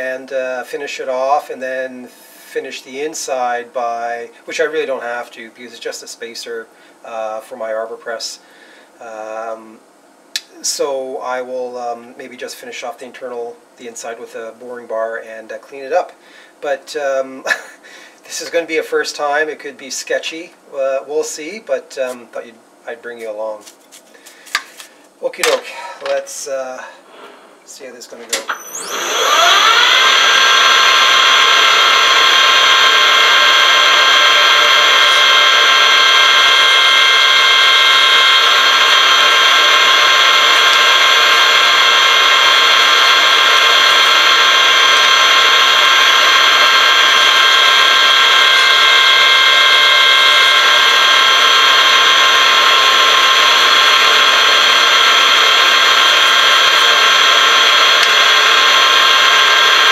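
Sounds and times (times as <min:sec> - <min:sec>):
metal lathe whining: 0:28.4 - 0:59.9.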